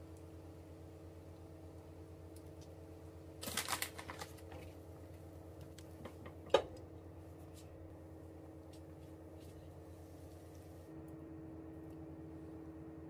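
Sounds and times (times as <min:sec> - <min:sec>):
plastic bag crinkling: 0:03.4 - 0:04.7.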